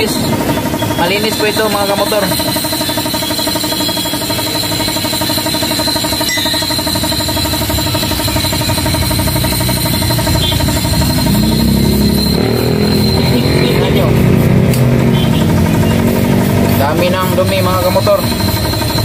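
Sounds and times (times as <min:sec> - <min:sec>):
motorcycle engine idling: 0:00.0 - 0:19.0
deeper engine note rising: 0:07.1 - 0:18.5.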